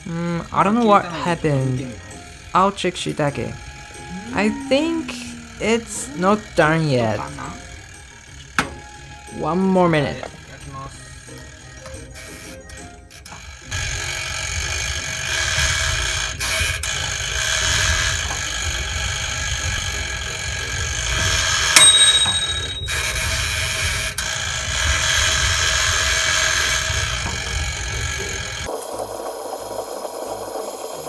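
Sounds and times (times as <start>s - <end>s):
clockwork timer running: 0.3s - 11.3s, 12.2s - 29.1s
timer bell ringing: 21.8s - 23.5s.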